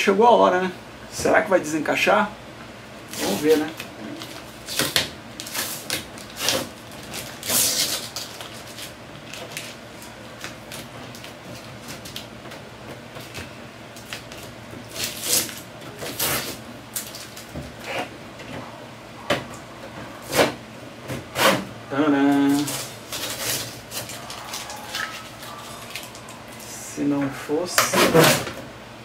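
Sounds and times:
plastic scraping: 22.4s - 26.6s.

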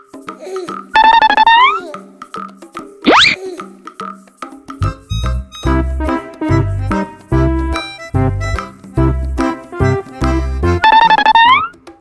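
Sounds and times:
pulsing tone effect bending upward: 1.0s - 1.8s, 3.0s - 3.4s, 10.8s - 11.7s
music with steady beat: 4.2s - 12.0s.

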